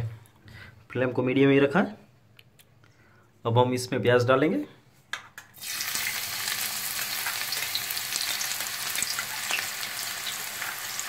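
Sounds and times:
onion sizzling in hot oil: 0:05.6 - 0:11.0.

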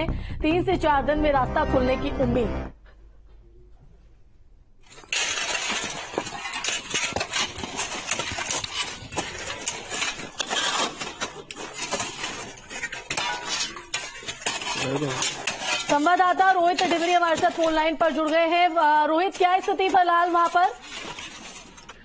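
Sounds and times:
metal shovels scraping snow and ice: 0:04.8 - 0:22.0.

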